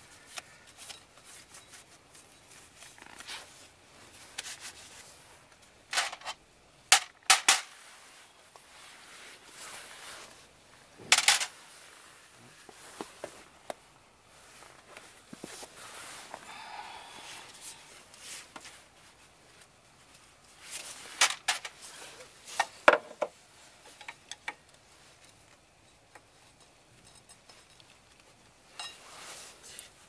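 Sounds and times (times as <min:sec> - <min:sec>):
metal parts clicking and knocking: 0:11.1 - 0:11.5.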